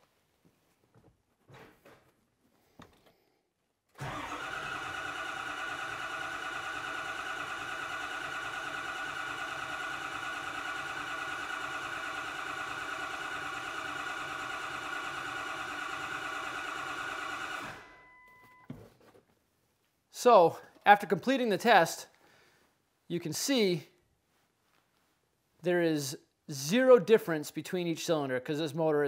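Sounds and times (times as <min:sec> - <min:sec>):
diesel engine cranking on starter: 0:04.0 - 0:18.0.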